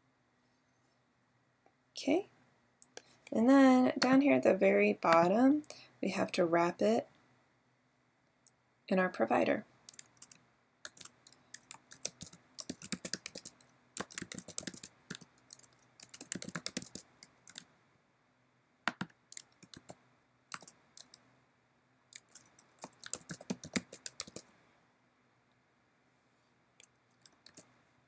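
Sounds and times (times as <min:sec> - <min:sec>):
typing on computer keyboard: 0:09.9 - 0:17.6, 0:18.9 - 0:21.2, 0:22.2 - 0:24.5, 0:27.2 - 0:27.7.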